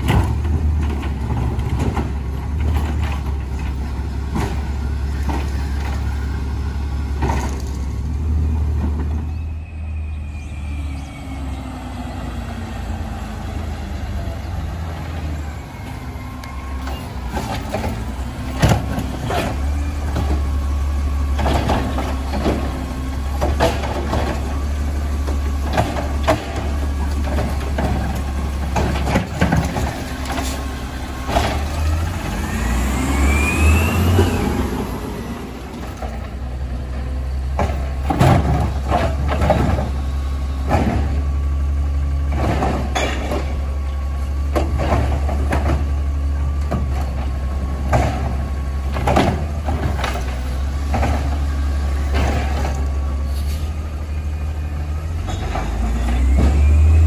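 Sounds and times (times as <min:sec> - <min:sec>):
knocks and clanks of cart: 0:00.0 - 0:09.4, 0:16.8 - 0:32.3, 0:35.6 - 0:53.8, 0:55.0 - 0:57.0
engine whine: 0:00.0 - 0:57.0
garbage truck engine running: 0:00.0 - 0:57.0.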